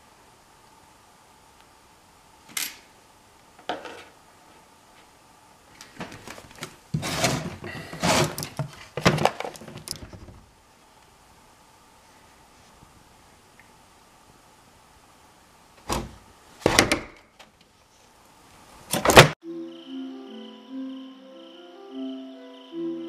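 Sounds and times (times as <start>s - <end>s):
plastic tub clattering and scraping: 6.0s - 10.3s.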